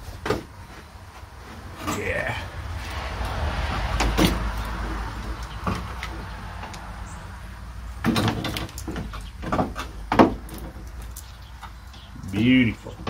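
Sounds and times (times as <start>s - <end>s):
radiator knocking and scraping: 2.7s - 7.2s, 7.8s - 13.0s
radiator clunking into place: 8.0s - 11.1s.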